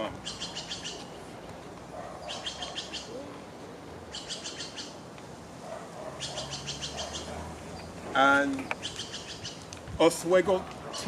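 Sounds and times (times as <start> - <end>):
small bird singing high chirps: 0.2 - 1.0.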